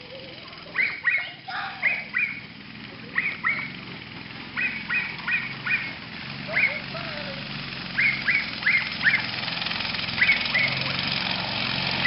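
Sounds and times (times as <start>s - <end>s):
animal high-pitched calls: 0.6s - 3.8s, 4.5s - 6.9s, 8.0s - 9.4s, 10.1s - 10.9s.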